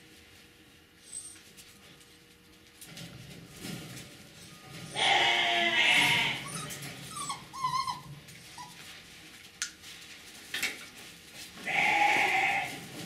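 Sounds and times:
puppies whining and yipping: 1.0 - 1.6, 5.8 - 9.0
puppy drawn-out cry: 4.9 - 8.7.

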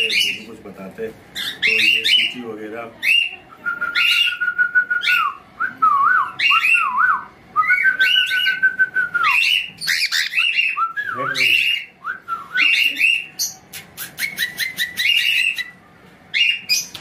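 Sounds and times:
cockatiel chirping: 0.0 - 0.5, 1.4 - 2.4, 9.2 - 11.9, 12.6 - 17.0.

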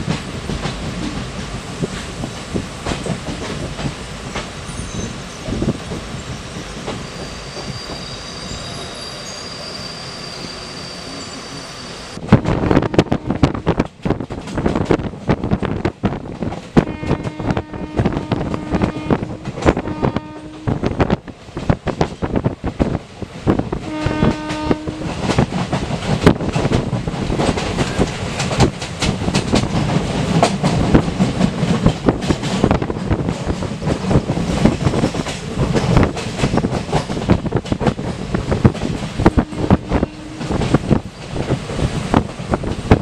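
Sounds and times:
train rumbling: 0.0 - 43.0
train horn: 12.6 - 13.6, 16.8 - 20.9, 23.8 - 25.4, 39.2 - 40.7.

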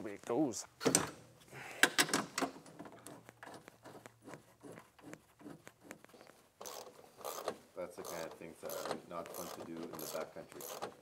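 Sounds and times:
clicks and knocks of metal parts: 1.8 - 4.0.

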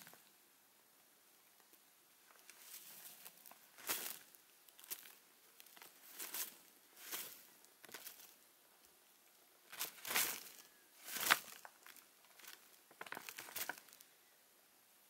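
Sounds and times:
powder package rustling: 9.7 - 14.0.

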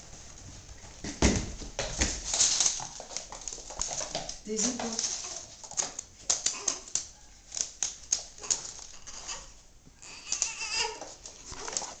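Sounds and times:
dog claws clicking on floor: 1.8 - 9.2, 10.2 - 12.0.

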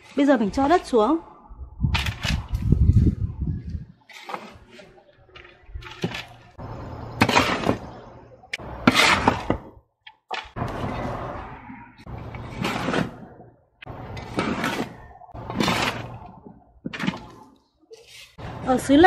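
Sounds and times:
shovel scraping soil: 4.0 - 5.0, 7.2 - 7.9, 8.6 - 9.7, 12.2 - 18.4.

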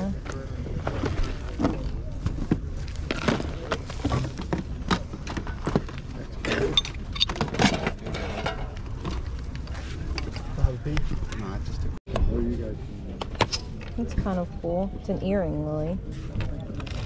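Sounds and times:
jewelry clinking and rattling: 6.4 - 9.4.

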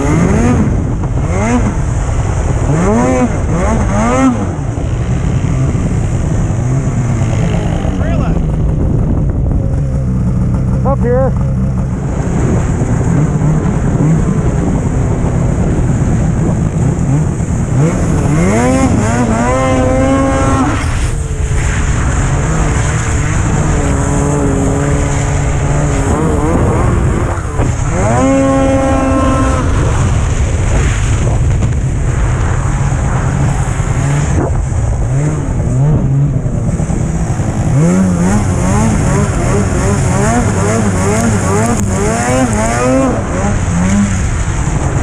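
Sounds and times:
snowmobile engine running: 0.0 - 45.0
snowmobile track noise: 0.0 - 45.0
wind: 0.0 - 45.0.

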